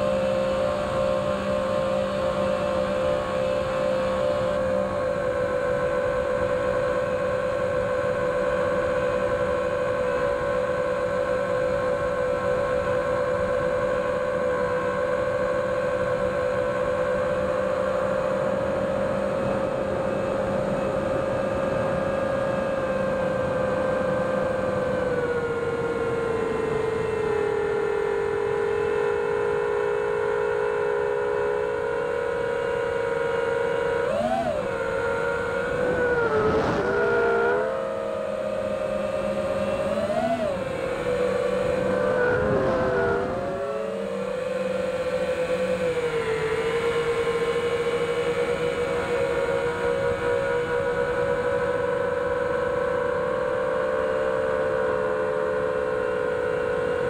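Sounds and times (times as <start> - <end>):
drone motors whining: 4.3 - 53.6
wind rushing over microphone: 34.6 - 37.8, 40.5 - 44.0.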